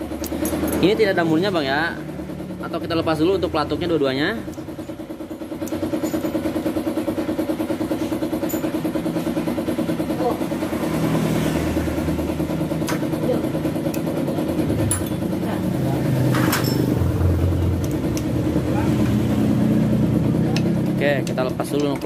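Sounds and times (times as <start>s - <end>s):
engine running: 0.0s - 22.0s
metallic clicks of hand tools: 20.6s - 22.0s.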